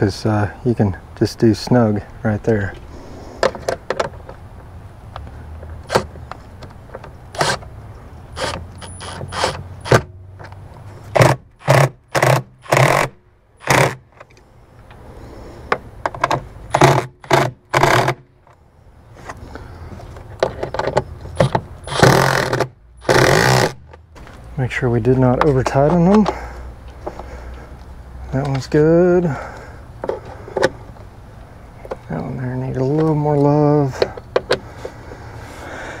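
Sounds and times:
impact driver bursts: 7.4 - 7.6, 8.4 - 10.1, 11.1 - 14.0, 16.7 - 18.2, 21.4 - 23.8.

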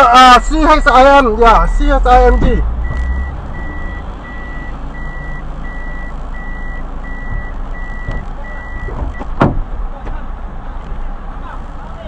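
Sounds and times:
engine and traffic rumble: 0.0 - 12.0
vehicle warning beeper: 1.6 - 9.4.

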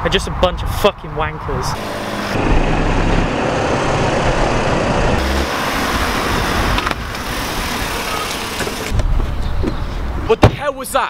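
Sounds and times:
car driving slowly: 1.8 - 9.8.

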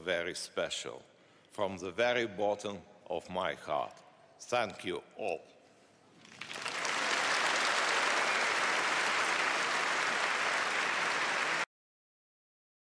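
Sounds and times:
audience applauding: 6.2 - 11.7.

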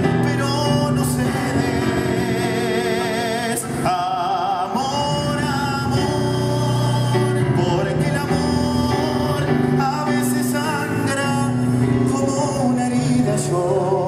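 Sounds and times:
keyboard accompaniment: 0.0 - 14.0
slow romantic ballad instrumental: 0.0 - 14.0.

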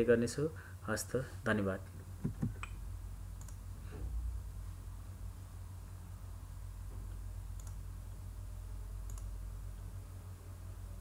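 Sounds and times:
low electrical hum: 0.0 - 11.0
computer mouse clicks: 3.4 - 3.6, 7.5 - 7.8, 9.0 - 9.3.

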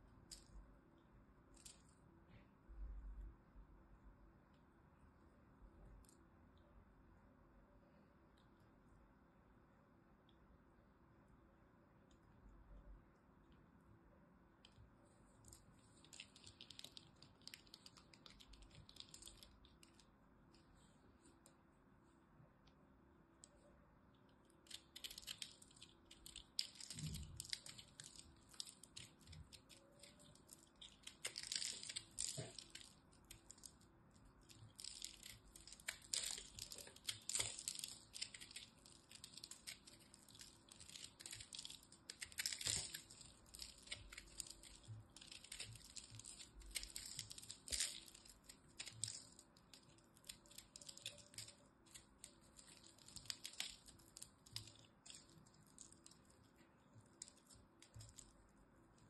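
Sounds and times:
fingers crumbling soap: 14.6 - 20.1, 24.6 - 59.0
knife carving crunchy soap: 24.7 - 56.4.

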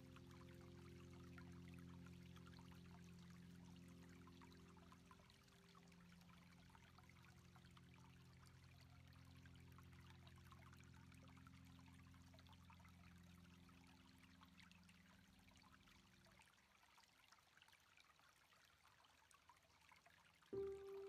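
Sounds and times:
low steady hum: 0.0 - 16.4, 20.6 - 21.0.

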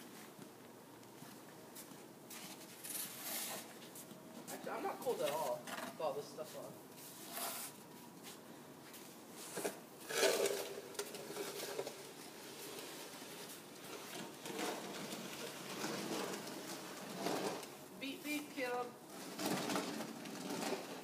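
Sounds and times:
snow shovel scraping concrete: 2.7 - 3.7, 9.4 - 18.5, 19.1 - 21.0.

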